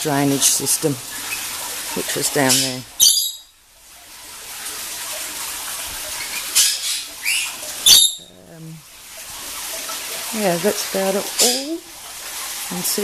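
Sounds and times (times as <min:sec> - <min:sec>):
parrots squawking: 0:02.4 - 0:03.5, 0:06.2 - 0:08.3.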